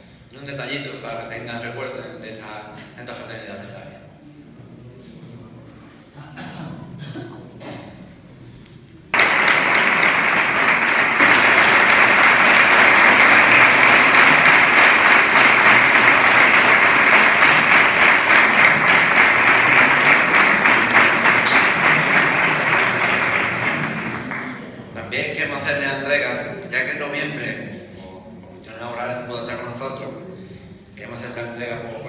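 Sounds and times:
audience applauding: 9.1s - 24.8s.

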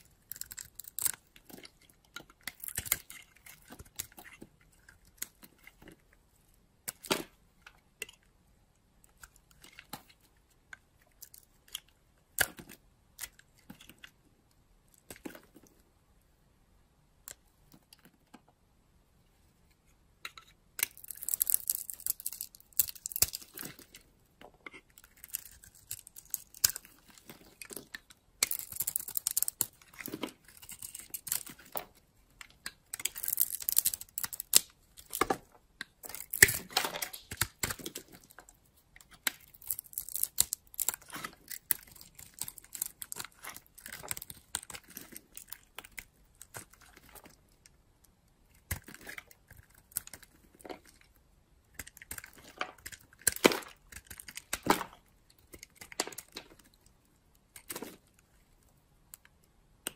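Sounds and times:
knife scraping dry soap: 0.0s - 6.0s, 35.9s - 47.4s, 51.7s - 56.7s.

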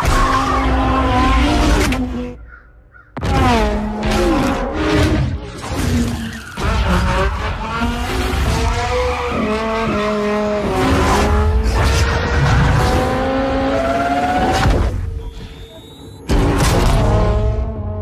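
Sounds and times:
race car engine revving: 3.2s - 14.8s.

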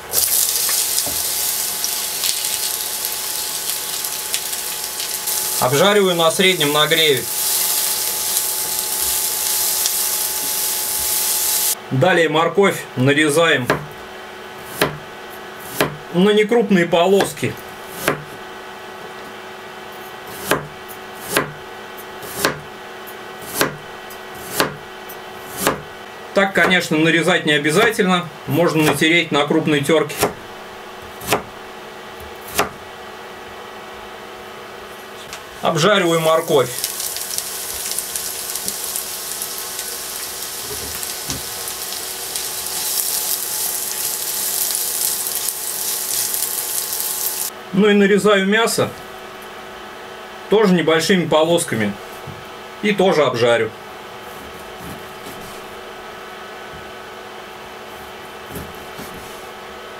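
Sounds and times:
carrots sizzling in oil: 0.0s - 11.8s, 35.6s - 47.5s
knife slicing carrot on board: 14.7s - 15.0s, 15.6s - 16.0s, 17.2s - 18.3s, 20.3s - 21.6s, 22.2s - 22.6s, 23.4s - 23.8s, 24.4s - 24.8s, 25.5s - 25.9s, 30.1s - 30.4s, 31.2s - 31.5s, 32.5s - 32.8s, 54.3s - 55.7s, 58.5s - 59.4s.

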